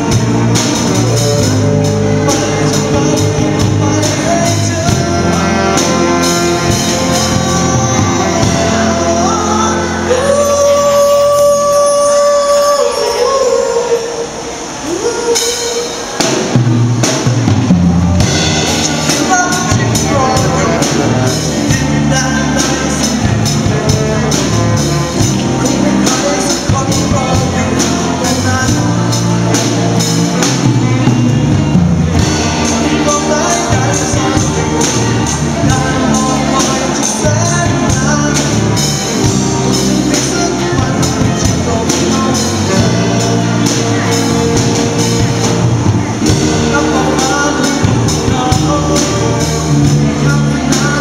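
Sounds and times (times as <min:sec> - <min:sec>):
drum beats: 0:00.0 - 0:11.8, 0:14.6 - 0:51.0
man singing: 0:00.0 - 0:16.6, 0:18.2 - 0:51.0
bass guitar: 0:00.0 - 0:51.0
electric guitar: 0:00.0 - 0:51.0.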